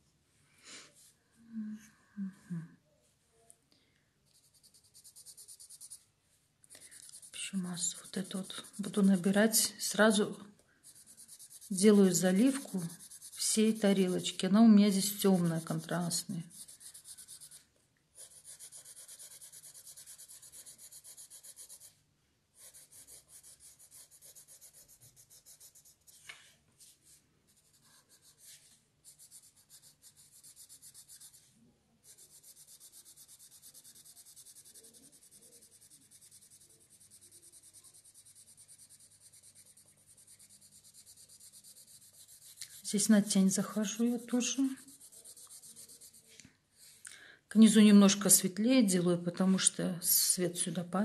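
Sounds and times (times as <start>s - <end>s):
pencil hatching on paper: 4.3s - 6.0s, 6.8s - 10.0s, 10.8s - 17.6s, 18.2s - 22.0s, 22.6s - 26.2s, 27.5s - 46.3s.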